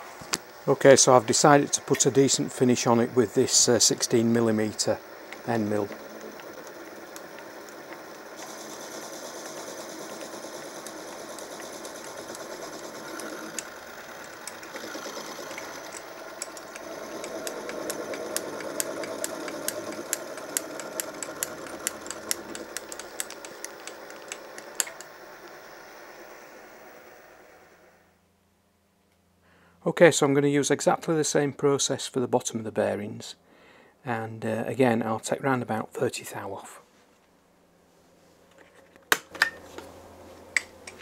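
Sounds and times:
milling machine cutting metal: 0:01.3 - 0:27.5
sharp ticks: 0:05.3 - 0:25.1.

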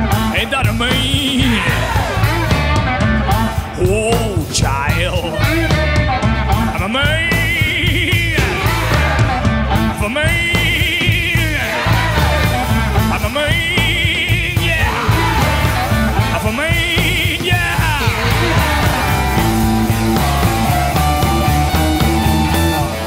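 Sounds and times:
electric blues band: 0:00.0 - 0:23.0
bending high lead guitar phrase: 0:14.8 - 0:23.0.

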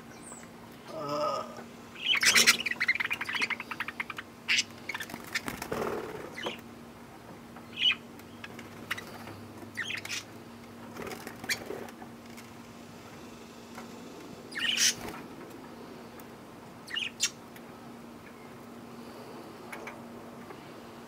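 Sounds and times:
budgerigars chirping and squawking: 0:02.0 - 0:06.6, 0:07.7 - 0:10.3, 0:11.1 - 0:11.8, 0:14.5 - 0:15.2, 0:16.8 - 0:17.4
birds flapping wings: 0:05.0 - 0:06.5, 0:10.9 - 0:12.6, 0:14.9 - 0:15.3.

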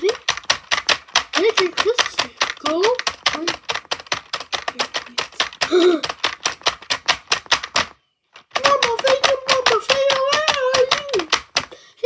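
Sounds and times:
rapid even tapping: 0:00.0 - 0:11.9
person humming a tune: 0:05.6 - 0:06.1.

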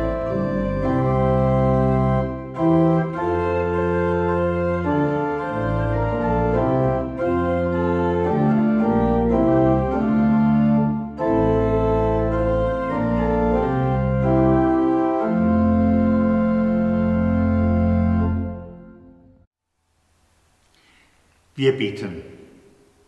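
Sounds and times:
church organ chords: 0:00.0 - 0:19.5.

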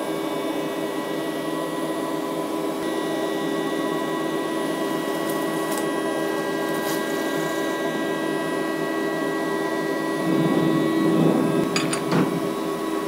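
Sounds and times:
milling machine spindle whine: 0:00.0 - 0:13.0.

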